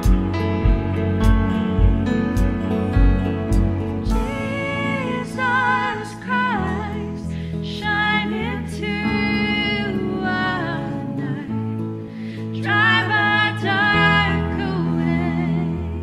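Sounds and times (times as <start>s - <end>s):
band with guitars cello and keyboard: 0.0s - 16.0s
woman singing: 4.0s - 16.0s.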